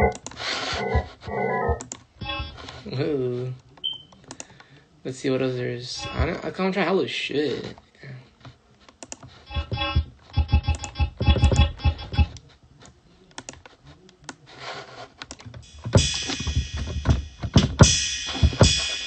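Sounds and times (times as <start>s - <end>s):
drum beat with cymbals: 15.6s - 19.0s.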